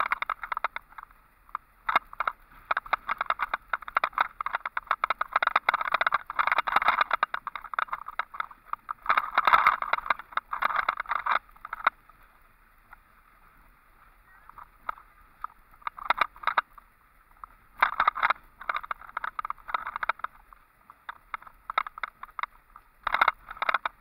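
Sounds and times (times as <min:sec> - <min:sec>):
dense rattling clatter: 0:00.0 - 0:12.0, 0:14.5 - 0:24.0.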